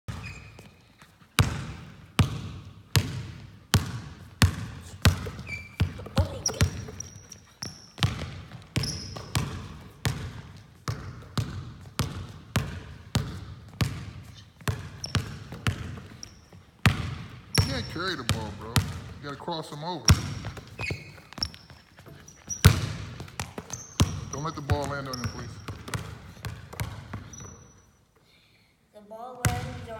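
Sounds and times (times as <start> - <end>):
shoe squeaks: 0.1 - 1.2, 5.2 - 8.2, 8.8 - 9.6, 14.4 - 16.8, 17.5 - 18.5, 20.1 - 26.0, 27.2 - 28.0
basketball bouncing on gym floor: 1.4 - 27.8, 29.4 - 29.9.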